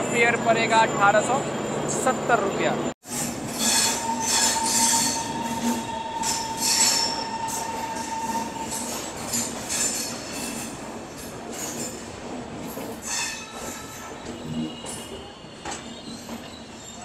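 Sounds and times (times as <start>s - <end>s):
train wheels running on rails: 3.0s - 17.0s
high wheel squeal: 3.1s - 10.6s
high-pitched screeches: 3.5s - 8.9s.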